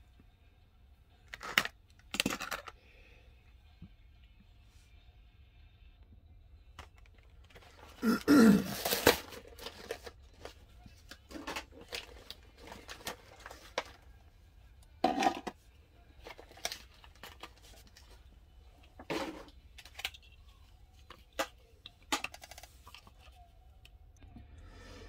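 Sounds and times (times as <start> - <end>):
packaging rustling and crinkling: 8.7 - 14.0.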